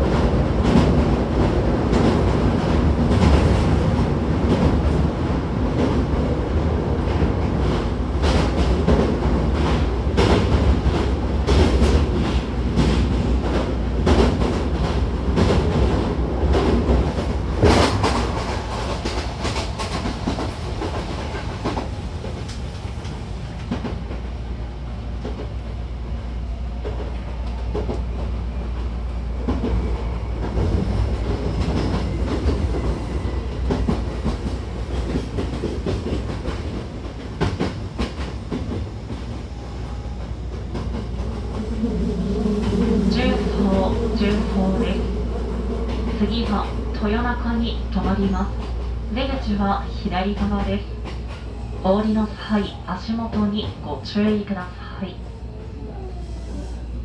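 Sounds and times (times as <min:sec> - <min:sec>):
train rumbling: 0:00.0 - 0:57.0.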